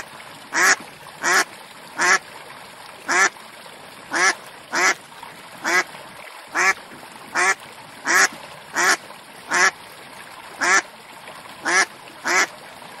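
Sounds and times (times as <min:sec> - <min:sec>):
duck quacking: 0:00.6 - 0:01.4, 0:02.0 - 0:02.2, 0:03.1 - 0:03.3, 0:04.1 - 0:05.0, 0:05.6 - 0:05.8, 0:06.6 - 0:06.8, 0:07.4 - 0:09.7, 0:10.6 - 0:10.8, 0:11.6 - 0:12.5.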